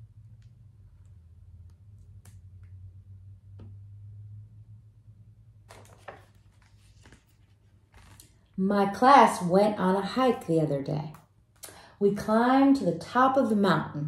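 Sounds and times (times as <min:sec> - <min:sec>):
faint low hum: 0:00.0 - 0:14.0
page turning rustles: 0:05.6 - 0:08.5
light ticks from handling book: 0:05.7 - 0:08.4.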